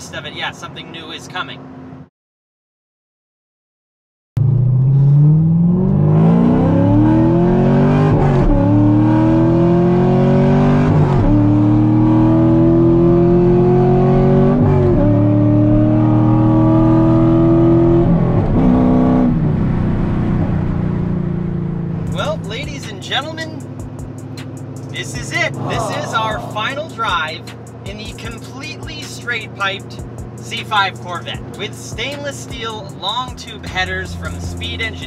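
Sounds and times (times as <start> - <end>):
loud car engine accelerating: 4.4 - 35.0.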